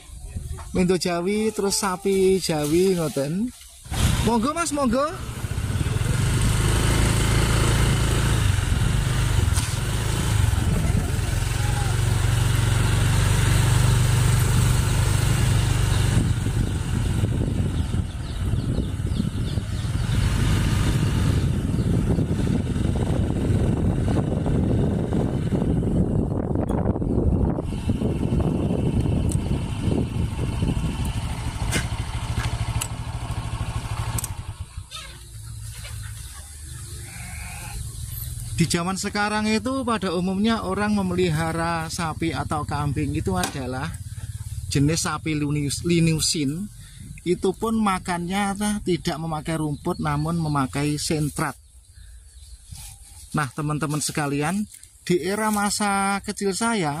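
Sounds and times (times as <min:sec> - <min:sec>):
motorcycle engine running: 0:03.8 - 0:56.2
sharp clicks: 0:31.0 - 0:33.3, 0:34.0 - 0:34.4.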